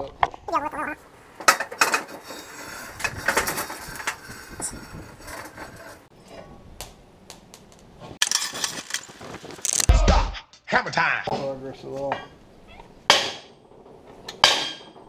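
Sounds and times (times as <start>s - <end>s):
metal clanking and scraping: 1.3s - 6.6s, 8.0s - 9.9s, 13.1s - 15.0s.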